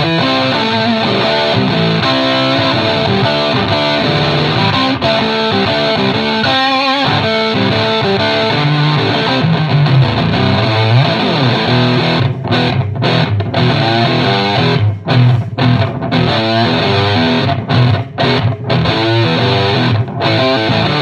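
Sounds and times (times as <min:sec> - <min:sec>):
fuzzy distorted electric guitar riffing: 0:00.0 - 0:21.0.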